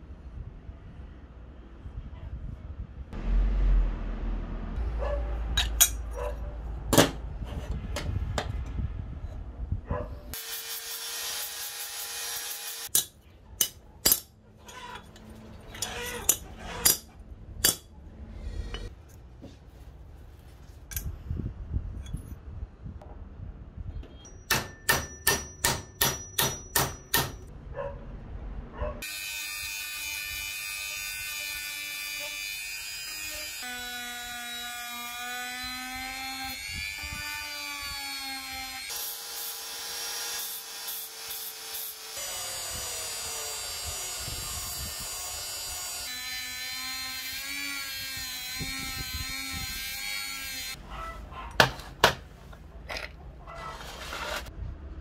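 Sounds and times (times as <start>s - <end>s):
rotary tool whining on steel: 14.6s - 18.9s, 29.0s - 50.8s
sharp metal strikes: 24.2s - 27.5s.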